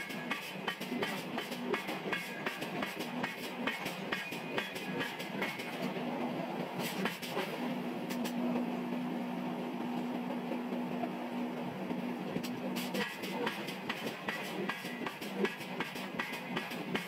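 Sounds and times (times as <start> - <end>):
machinery clattering: 0.0 - 6.0, 11.9 - 17.0
machinery hum: 0.0 - 17.0.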